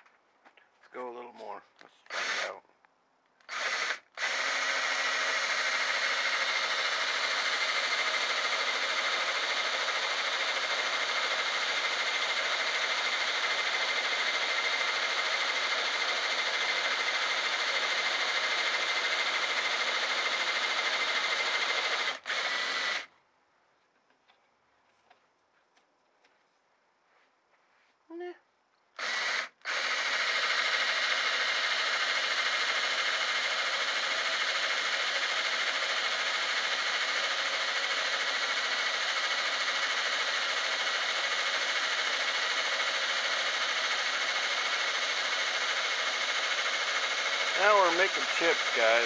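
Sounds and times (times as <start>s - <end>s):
drill motor high whine: 2.1s - 2.6s, 3.4s - 23.1s, 29.0s - 49.0s.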